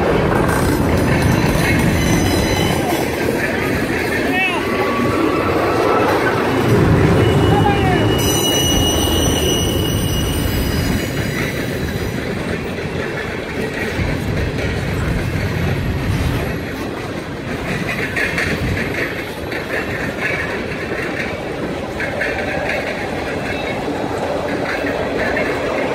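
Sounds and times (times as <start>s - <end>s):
freight train wheels rumbling: 0.0s - 25.9s
high wheel squeal: 1.2s - 12.2s.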